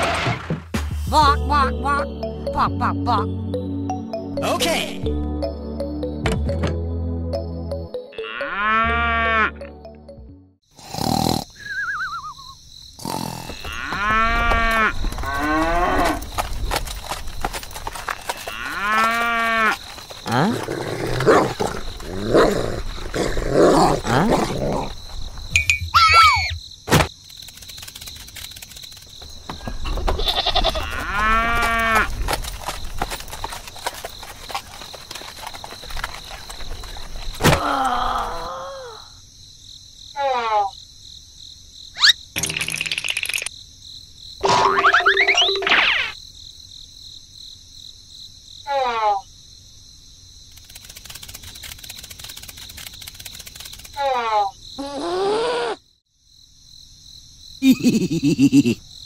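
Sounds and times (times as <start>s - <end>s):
animal calls like cattle lowing: 11.3s - 16.4s
scattered clicks: 27.2s - 29.2s, 50.5s - 54.0s.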